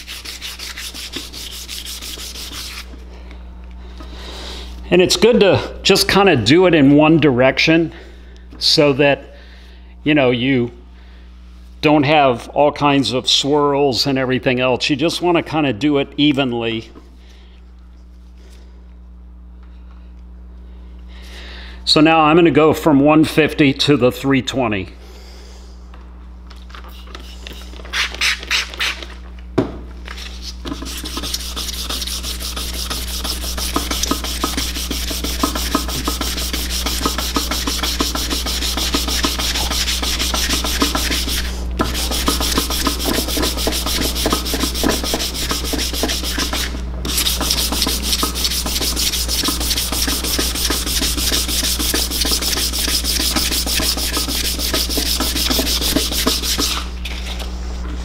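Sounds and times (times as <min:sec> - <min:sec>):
sandpaper rubbing on metal: 0:00.0 - 0:02.9, 0:30.2 - 0:56.9.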